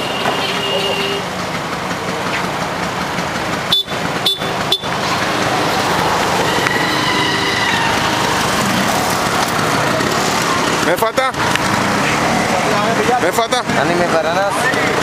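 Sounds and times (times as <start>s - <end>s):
vehicle horn honking: 0.0s - 1.3s, 3.7s - 5.0s
busy street traffic: 0.0s - 15.0s.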